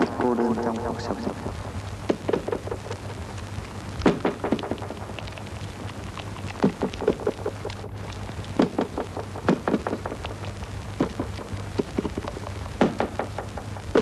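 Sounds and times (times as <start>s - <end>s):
crackling clicks and pops: 0.0s - 14.0s
steady low hum: 0.0s - 14.0s.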